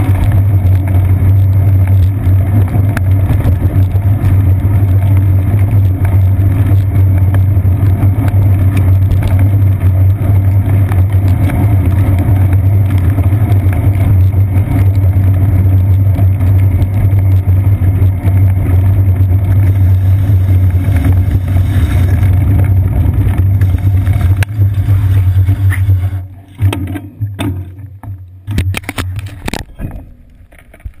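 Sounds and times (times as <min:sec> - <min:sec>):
bicycle road rumble and wind: 0:00.0 - 0:31.0
knocks and clicks: 0:22.1 - 0:31.0.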